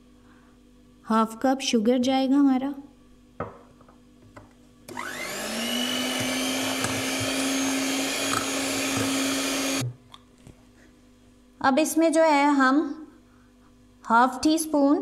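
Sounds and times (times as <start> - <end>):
electric hand mixer whining: 4.9 - 9.9.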